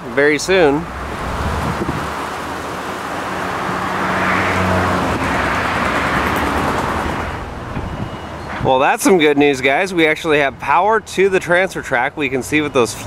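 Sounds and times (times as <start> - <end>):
motor vehicle passing by: 0.6 - 8.6.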